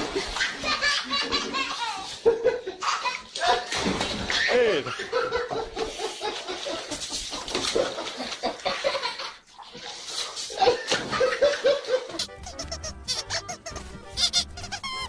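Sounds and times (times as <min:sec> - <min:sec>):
people laughing: 0:00.5 - 0:03.7, 0:04.5 - 0:09.3, 0:10.5 - 0:12.7
cat splashing water in basin: 0:03.2 - 0:05.0, 0:05.7 - 0:12.1.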